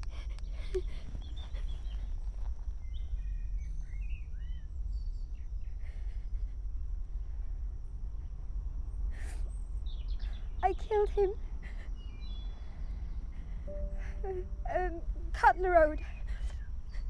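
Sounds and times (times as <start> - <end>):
faint high whine: 0.0 - 17.0
steady low rumble: 0.0 - 17.0
bird chirps: 0.4 - 2.2, 2.8 - 5.8, 9.4 - 11.0, 11.8 - 14.9.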